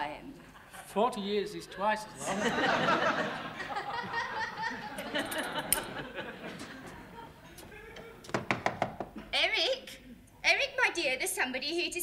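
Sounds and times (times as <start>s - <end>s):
audience laughing: 2.1s - 8.2s
sharp knocks: 8.3s - 9.2s.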